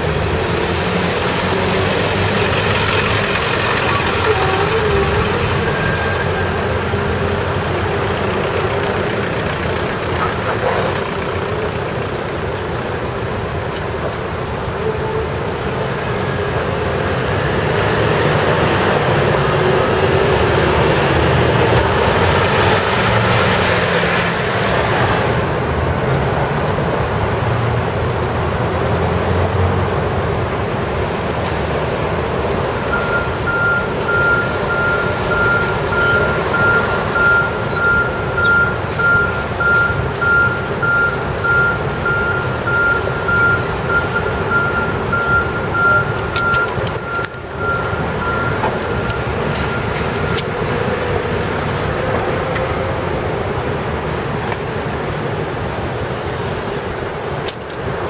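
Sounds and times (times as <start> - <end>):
heavy vehicles passing: 0.0 - 58.0
intersection traffic: 0.0 - 58.0
reversing alarm beeping: 32.9 - 50.4.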